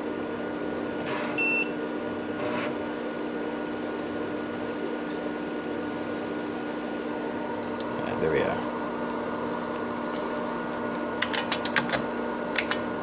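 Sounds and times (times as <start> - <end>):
computer fan and hard drive hum: 0.0 - 13.0
short computer beep: 1.4 - 1.7.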